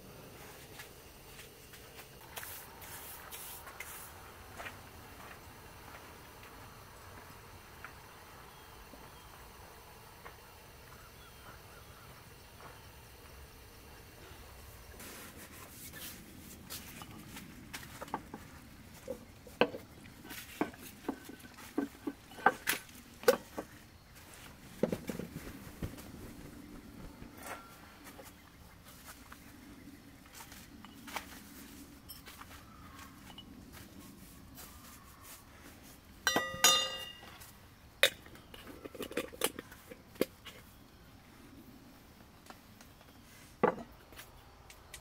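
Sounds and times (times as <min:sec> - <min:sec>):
tumblers knocking and clinking: 0:36.3 - 0:37.4.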